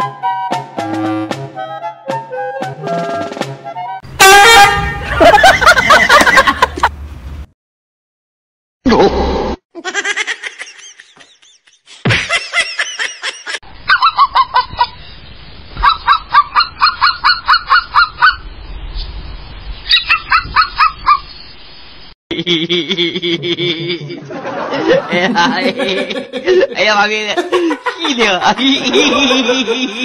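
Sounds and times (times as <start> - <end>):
toy robot dog barking electronically: 13.9 - 14.6, 15.8 - 18.4
toy robot dog pitched cries: 13.9 - 14.9.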